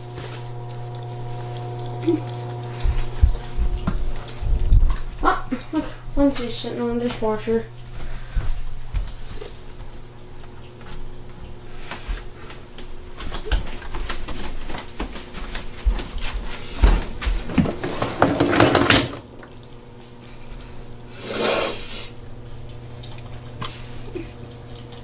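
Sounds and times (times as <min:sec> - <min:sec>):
faint steady hum: 0:00.0 - 0:25.0
dishwasher racks rattling: 0:17.5 - 0:19.3.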